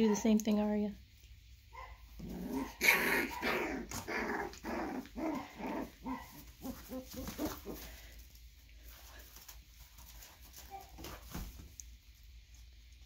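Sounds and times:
puppies barking and growling: 1.7s - 8.2s.

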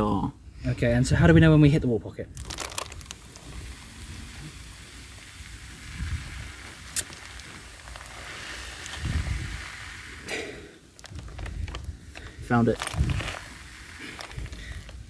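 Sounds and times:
water spraying shower: 3.2s - 11.1s, 12.5s - 15.0s.

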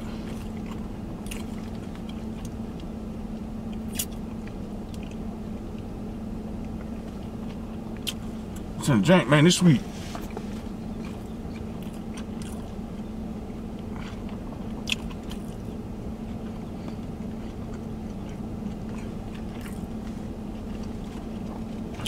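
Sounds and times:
vehicle cab engine hum: 0.0s - 22.0s
wet mouth sounds tasting: 11.0s - 12.8s, 13.9s - 15.7s, 16.9s - 20.0s.

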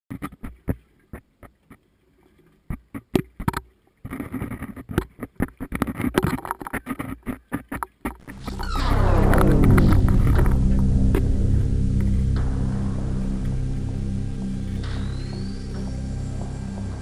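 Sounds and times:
music: 8.3s - 17.0s.

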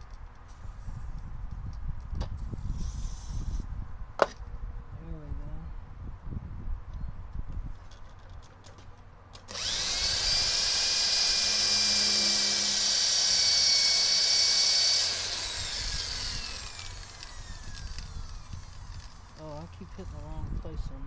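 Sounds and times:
electric drill whining: 9.4s - 20.2s.

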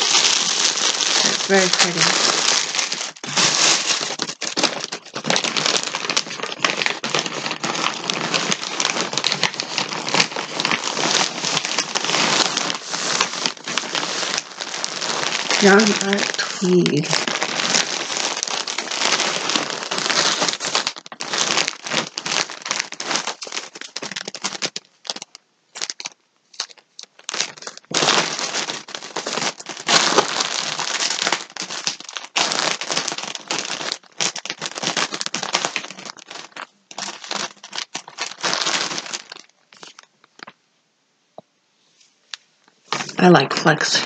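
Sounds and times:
packaging rustling and crackling: 0.0s - 40.6s, 42.2s - 44.0s.

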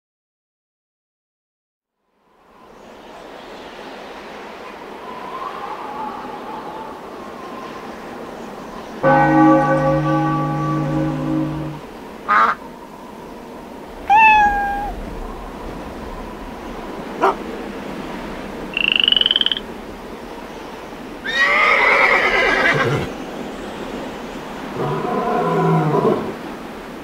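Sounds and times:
animal calls: 14.1s - 15.0s, 17.2s - 17.4s, 18.8s - 19.6s.

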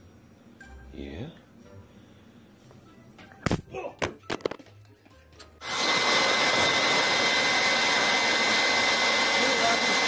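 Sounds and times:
handheld blower running: 5.6s - 10.0s.

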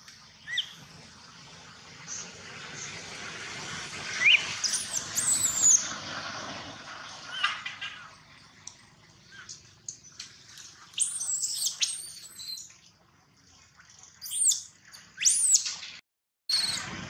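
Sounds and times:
baby monkey squealing: 4.2s - 5.8s, 11.0s - 12.6s, 14.2s - 14.6s, 15.2s - 15.7s, 16.5s - 16.9s.

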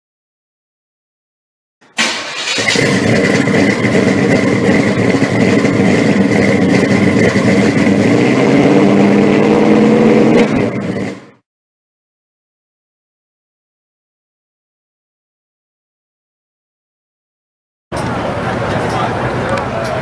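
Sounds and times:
car engine running: 2.0s - 11.4s.

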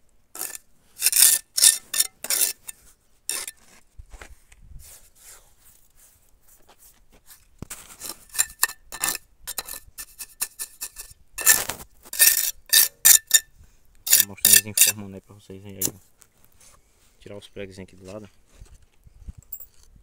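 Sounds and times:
trowel scraping concrete blocks: 0.4s - 3.9s, 6.8s - 15.0s.

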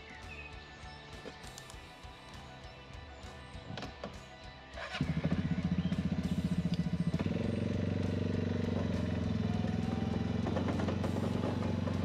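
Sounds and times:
quad bike engine: 4.8s - 12.0s.

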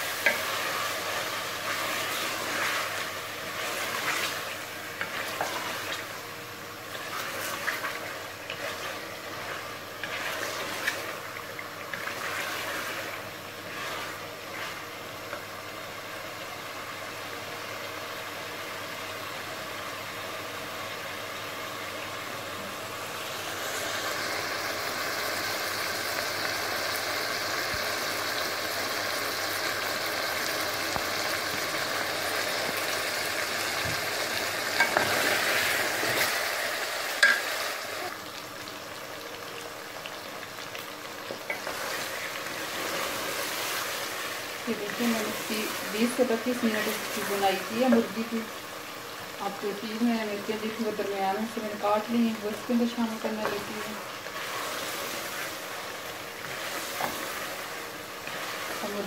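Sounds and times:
chicken sizzling in oil: 0.0s - 59.0s
wooden spoon scraping a pot: 6.9s - 14.9s, 53.2s - 55.7s, 56.4s - 59.0s.

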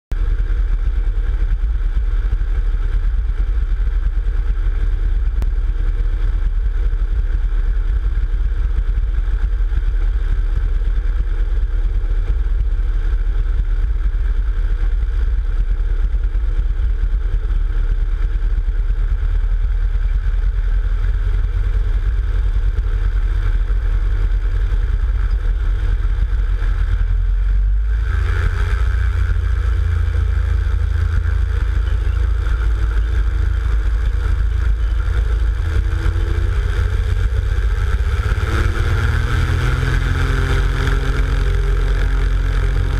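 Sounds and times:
plane piston engine idling: 17.2s - 42.9s.

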